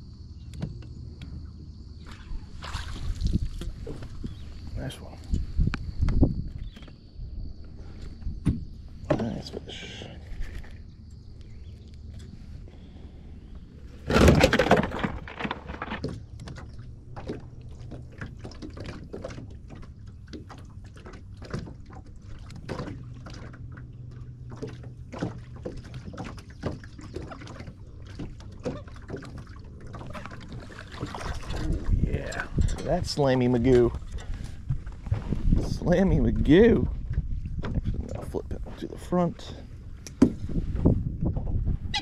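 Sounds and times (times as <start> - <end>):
clattering in metal boat: 13.9 - 42.0.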